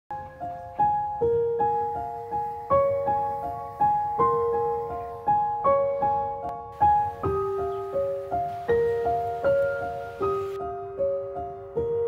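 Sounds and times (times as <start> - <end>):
gentle piano melody: 0.1 - 12.0.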